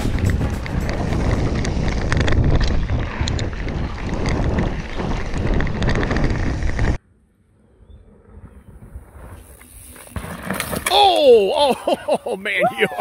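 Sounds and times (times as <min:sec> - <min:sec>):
bike tyres rumbling and rattling: 0:00.0 - 0:07.0, 0:08.1 - 0:12.2
wind buffeting microphone: 0:00.0 - 0:07.0.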